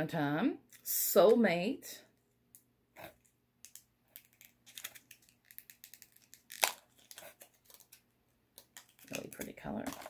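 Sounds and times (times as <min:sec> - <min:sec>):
plastic packaging clicks and rustles: 0:03.2 - 0:08.0, 0:08.6 - 0:10.0
plastic packaging snap: 0:03.6 - 0:08.0.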